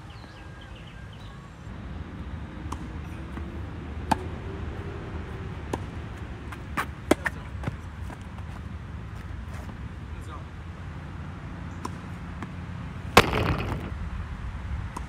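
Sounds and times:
rackets striking tennis ball: 2.6s - 4.3s, 5.6s - 7.8s, 11.8s - 15.0s
ball bouncing on court: 13.2s - 14.0s.

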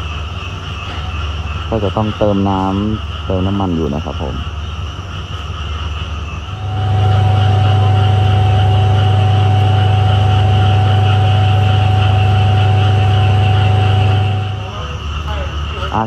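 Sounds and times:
diesel train engine idling: 0.0s - 16.0s
thin steady whine: 0.0s - 16.0s.

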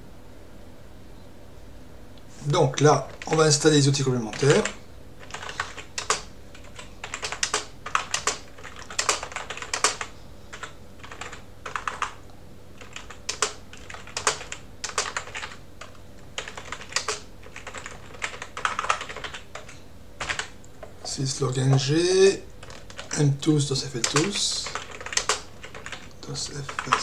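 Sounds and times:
computer keyboard typing: 2.9s - 12.2s, 12.8s - 21.8s, 22.6s - 23.2s, 24.0s - 27.0s.

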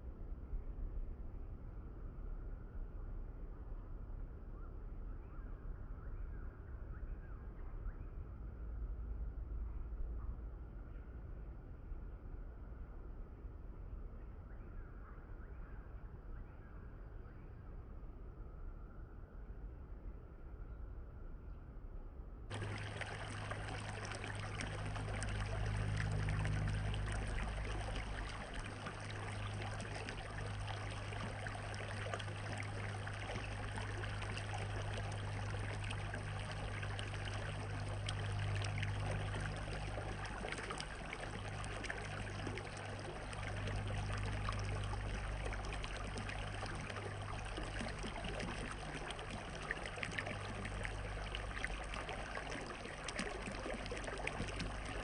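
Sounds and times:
low steady hum: 22.5s - 55.0s
water trickling and splashing: 22.5s - 55.0s.

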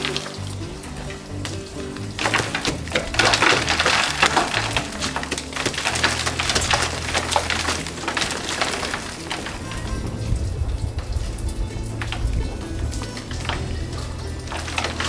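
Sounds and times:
background music with bass: 0.0s - 15.0s
clay wall crumbling: 0.0s - 15.0s.

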